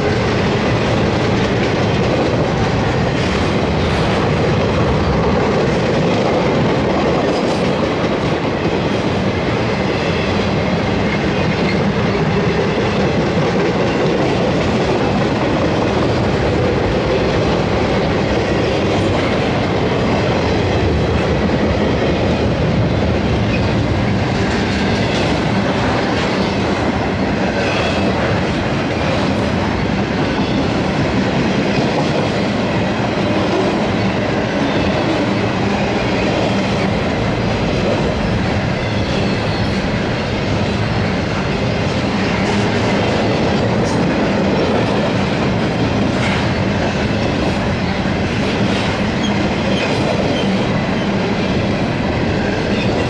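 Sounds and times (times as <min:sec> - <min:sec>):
train wheels rolling on rails: 0:00.0 - 0:53.0
faint rail clacks: 0:41.4 - 0:50.7.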